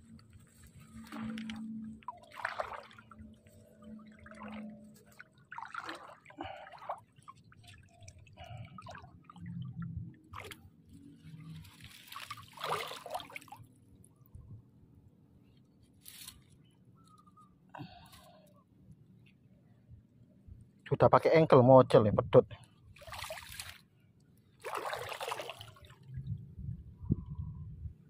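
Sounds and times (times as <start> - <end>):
water splashing and dripping: 1.0 - 10.7, 11.5 - 13.7, 23.0 - 23.8, 24.6 - 26.2.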